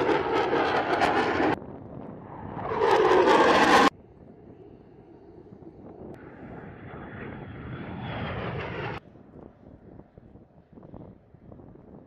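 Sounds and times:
jet engine roar: 0.0 - 9.4.

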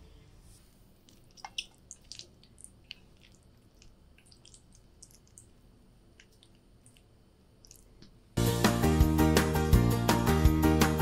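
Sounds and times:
sticky food squishing on a plate: 0.7 - 8.2.

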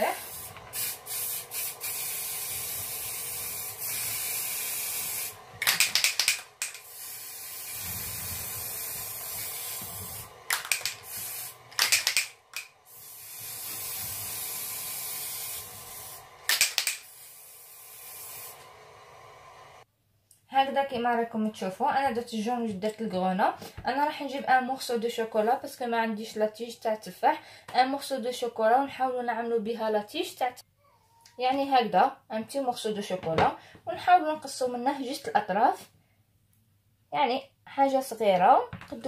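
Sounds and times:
aerosol spray hissing: 0.0 - 18.8
spray can rattling: 0.2 - 18.5.

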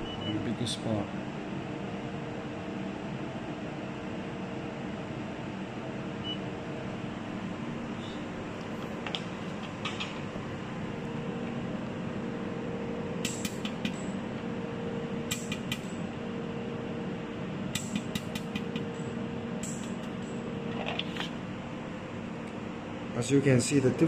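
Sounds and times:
cooling system hum: 0.0 - 24.0
laser welder firing sharp ticks: 13.2 - 14.0, 15.3 - 15.9.

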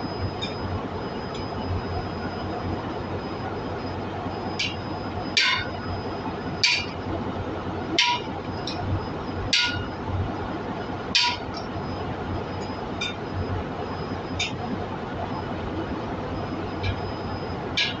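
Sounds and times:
hammer striking metal tool: 5.4 - 5.7, 9.6 - 9.9, 11.2 - 11.5.

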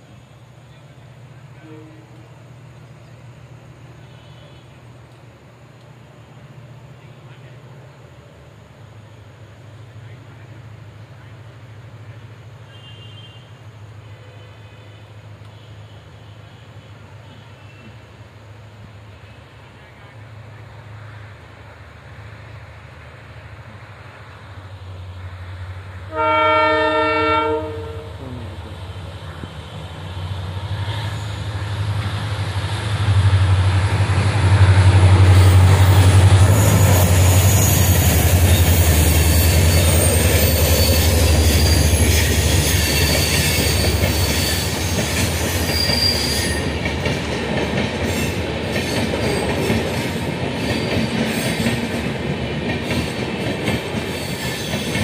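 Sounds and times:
locomotive horn blast: 1.5 - 2.3, 26.1 - 28.6
deep diesel engine rumble: 27.6 - 38.8
train wheel clatter: 29.3 - 55.0
high wheel squeal: 30.8 - 31.7, 35.1 - 46.8, 54.0 - 55.0.

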